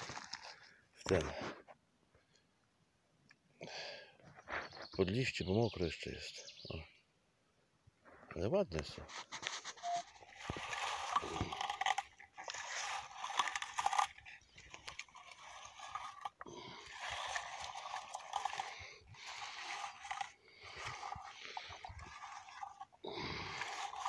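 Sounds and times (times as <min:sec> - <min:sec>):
comb scraping through leaves: 0:00.0 - 0:00.6, 0:09.0 - 0:24.0.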